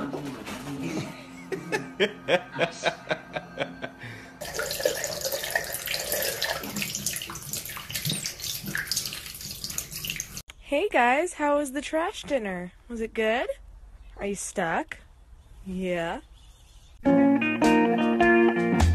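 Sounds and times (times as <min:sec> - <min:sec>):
tap water splashing onto towel: 0:04.5 - 0:10.4.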